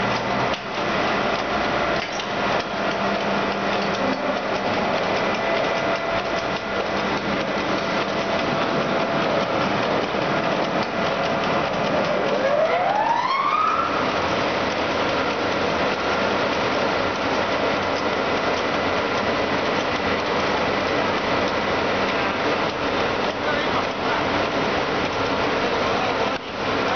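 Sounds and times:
rising machine whine: 0:12.0 - 0:14.4.

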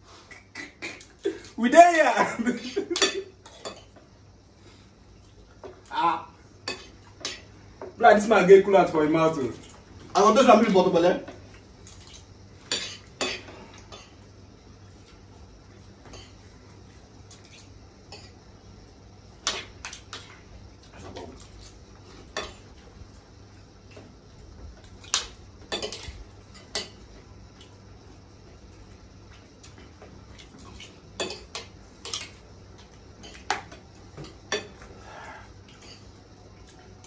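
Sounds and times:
spoons clinking on ceramic plates: 0:02.9 - 0:04.0, 0:22.4 - 0:22.6, 0:25.7 - 0:27.0, 0:31.2 - 0:32.4, 0:33.2 - 0:34.8.

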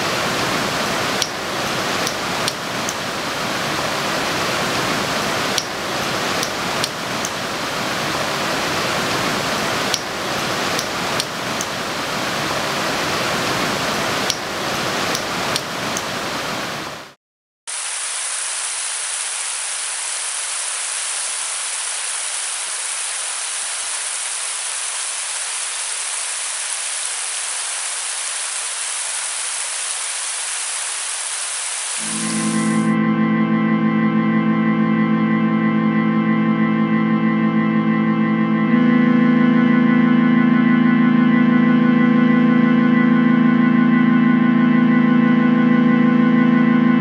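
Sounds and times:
steady rushing noise: 0:00.0 - 0:33.0
crackles and clicks: 0:00.9 - 0:03.1, 0:05.2 - 0:07.7, 0:09.1 - 0:12.1, 0:13.7 - 0:16.8, 0:21.1 - 0:32.9
thin hiss: 0:17.7 - 0:32.9.

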